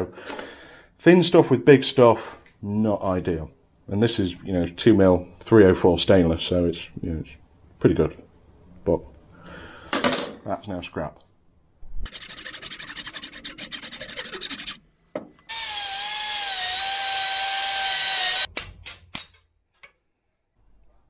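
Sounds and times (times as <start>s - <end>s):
handsaw cutting wood: 12.1s - 14.8s
drill whining: 15.5s - 18.5s.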